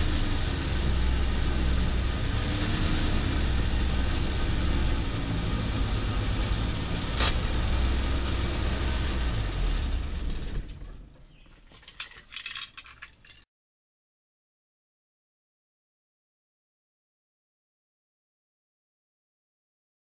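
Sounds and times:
two-stroke engine idling: 0:00.0 - 0:10.9.

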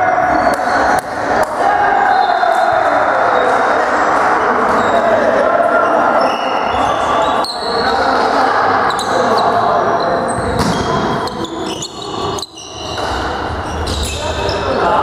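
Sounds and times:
sneakers squeaking on floor: 0:00.0 - 0:01.2, 0:04.6 - 0:15.0
players' voices: 0:00.0 - 0:15.0.

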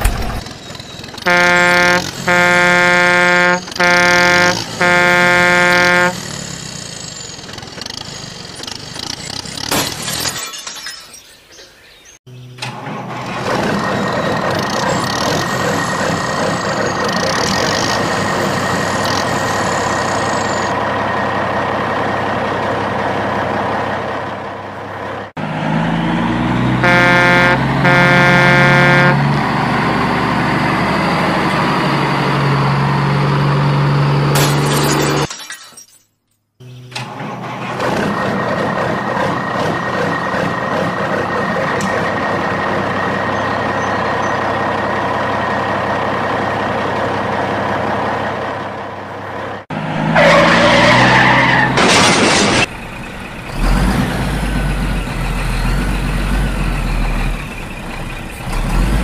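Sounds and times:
heavy truck engine running: 0:00.0 - 0:09.8, 0:12.3 - 0:34.4, 0:36.6 - 0:59.0
truck horn blasts: 0:01.2 - 0:06.6, 0:26.7 - 0:29.5.

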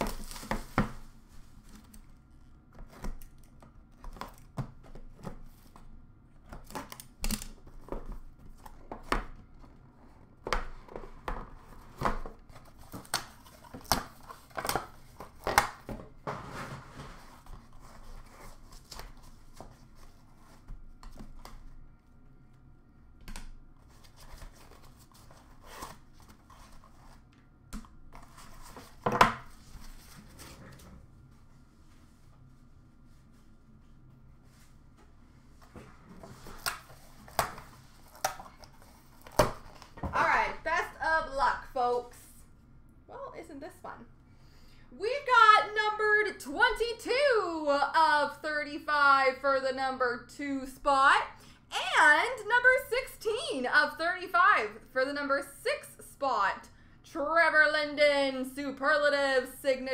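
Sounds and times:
cardboard and plastic rustling: 0:00.0 - 0:21.8, 0:23.8 - 0:27.4, 0:28.1 - 0:31.4, 0:35.5 - 0:40.6.

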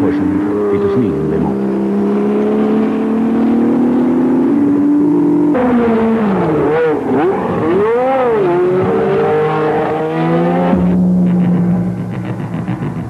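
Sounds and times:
race car engines at speed: 0:00.0 - 0:13.0
steady low tone: 0:10.5 - 0:13.0.

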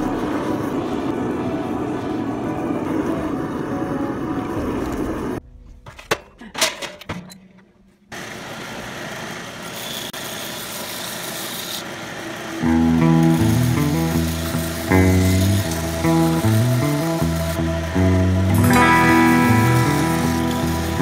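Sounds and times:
music: 0:00.0 - 0:06.1, 0:12.6 - 0:21.0
gas forge burner running: 0:08.1 - 0:21.0
belt grinder running: 0:09.7 - 0:21.0.

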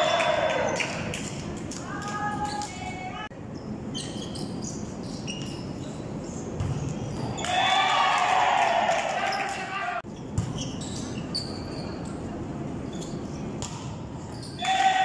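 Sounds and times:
shoe squeaks: 0:02.4 - 0:07.5, 0:10.1 - 0:13.5, 0:14.2 - 0:14.6.

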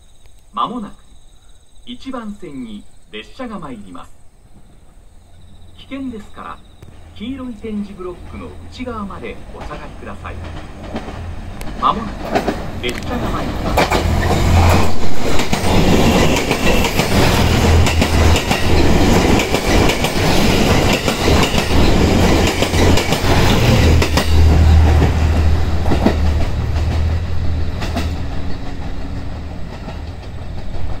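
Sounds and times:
low train engine hum: 0:03.5 - 0:31.0
train wheels clattering over joints: 0:08.0 - 0:31.0.

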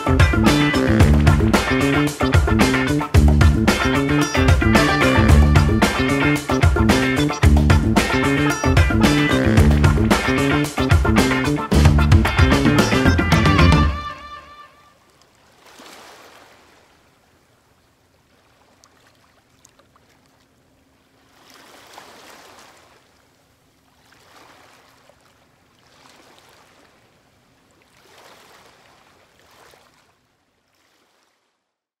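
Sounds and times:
water lapping: 0:00.0 - 0:31.7.

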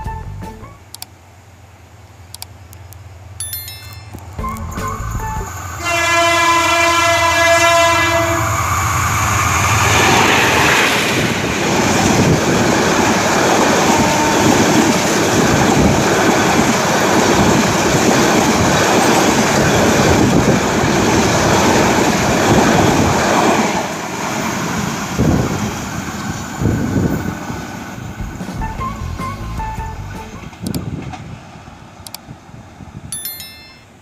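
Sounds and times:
train coaches rushing and rattling past: 0:02.8 - 0:33.5
locomotive horn: 0:04.4 - 0:08.9, 0:13.9 - 0:14.7.

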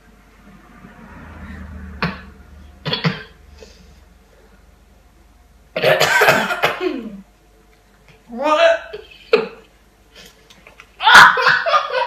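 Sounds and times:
person coughing: 0:02.8 - 0:03.4, 0:05.8 - 0:07.2, 0:09.2 - 0:09.6.

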